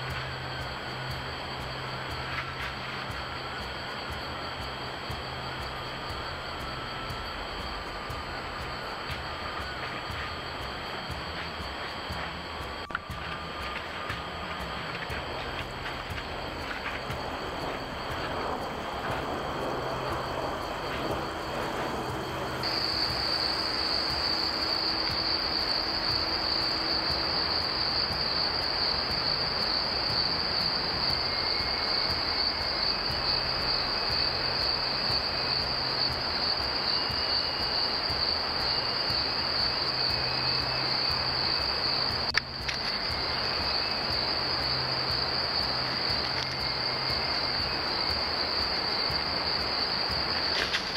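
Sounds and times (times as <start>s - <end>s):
crickets trilling: 0.0s - 50.9s
night background hiss: 0.0s - 50.9s.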